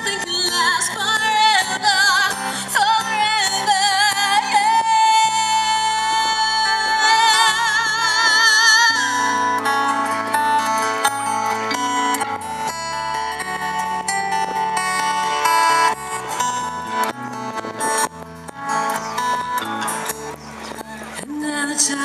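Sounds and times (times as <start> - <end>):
woman singing: 0.0 - 9.7, 21.2 - 22.0
acoustic and electric guitars: 0.0 - 22.0.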